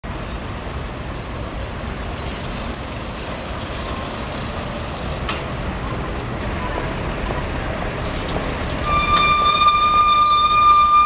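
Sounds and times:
diesel lorry engines: 0:00.0 - 0:11.0
traffic road noise: 0:00.0 - 0:11.0.

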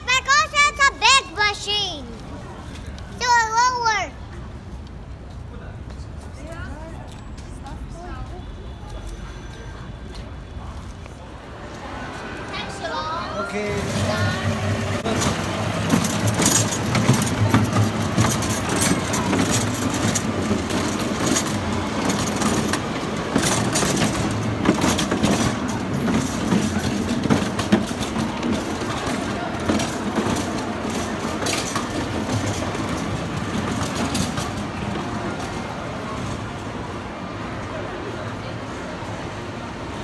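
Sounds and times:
small ride train rumbling: 0:00.0 - 0:40.0
track clicks and rattles: 0:13.8 - 0:36.3.

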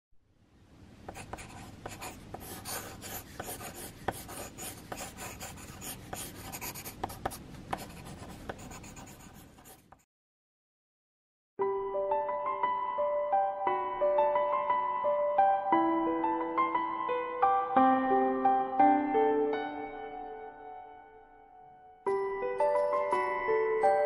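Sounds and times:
pencil scratching on paper: 0:01.1 - 0:10.1.

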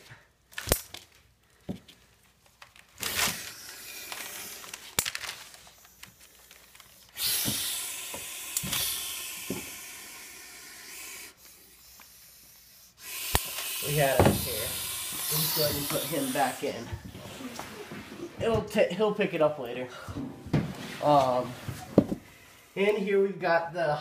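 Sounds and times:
snake hissing: 0:03.0 - 0:05.0, 0:05.6 - 0:17.8.

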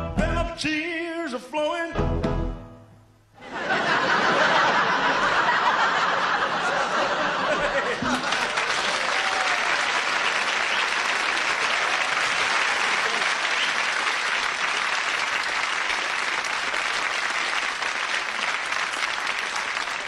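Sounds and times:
audience applauding: 0:04.0 - 0:20.0.

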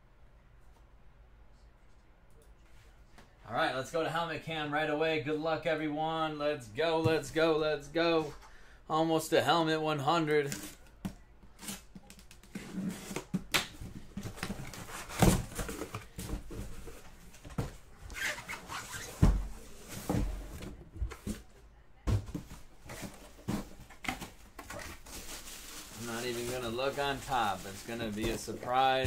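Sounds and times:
cardboard rustling and scraping: 0:11.5 - 0:29.0.

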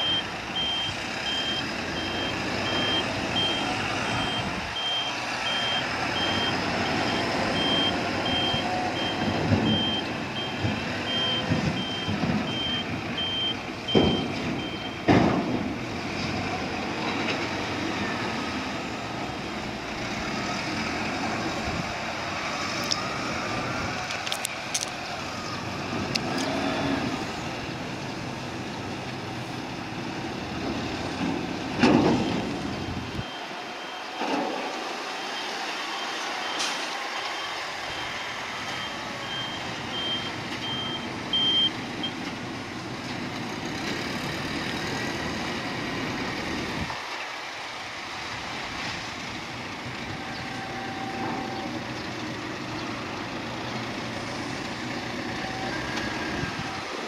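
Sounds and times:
reversing warning beeper: 0:00.0 - 0:15.1, 0:32.1 - 0:42.2, 0:50.1 - 0:51.8
heavy vehicles running: 0:00.0 - 0:57.0.

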